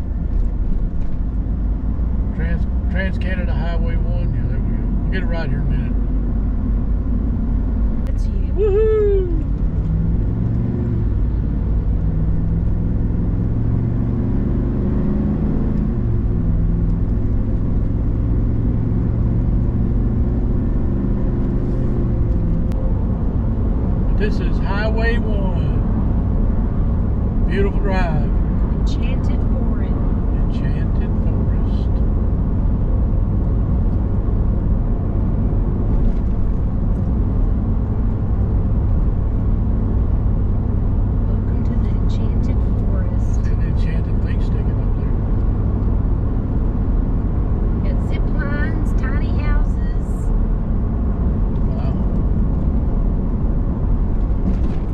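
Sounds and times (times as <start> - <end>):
pickup engine drone: 0.0 - 54.9
road noise: 0.0 - 54.9.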